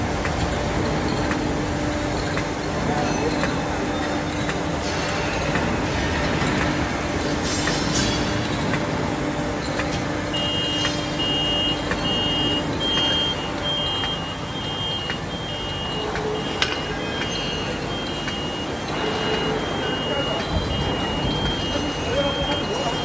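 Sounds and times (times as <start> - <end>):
clicks of tubes on conveyor: 0.0 - 23.0
machine clattering: 0.0 - 23.0
two-tone electronic beep: 10.3 - 23.0.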